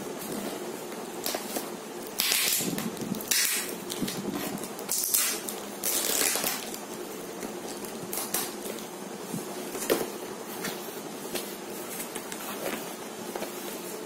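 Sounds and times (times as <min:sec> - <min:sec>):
knife slitting packing tape: 0:02.0 - 0:06.8.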